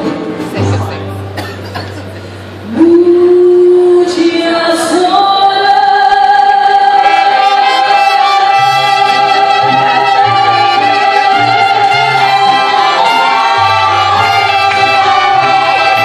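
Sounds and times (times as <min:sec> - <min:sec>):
mariachi band playing: 0:00.0 - 0:02.6, 0:05.7 - 0:16.0
woman singing: 0:02.6 - 0:12.4.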